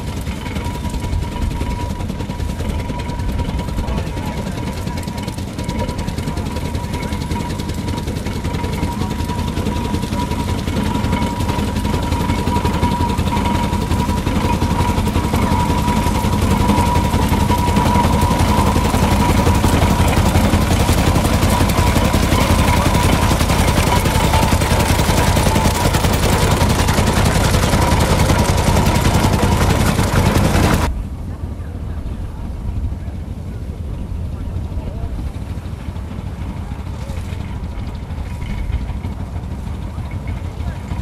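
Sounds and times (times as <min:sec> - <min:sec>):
tractor engine popping exhaust: 0:00.0 - 0:30.9, 0:35.4 - 0:41.0.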